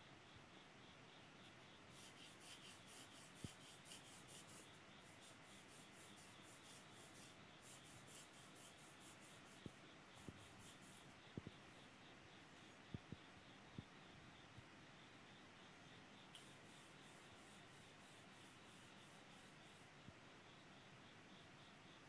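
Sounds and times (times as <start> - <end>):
pencil scratching on paper: 1.9 - 11.1, 16.4 - 19.8.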